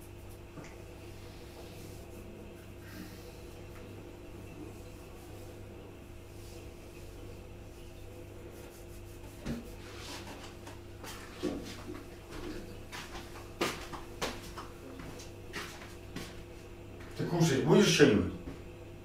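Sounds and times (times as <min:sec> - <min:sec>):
steady low hum: 0:00.0 - 0:19.0
knocks and rustles in kitchen: 0:09.2 - 0:17.2.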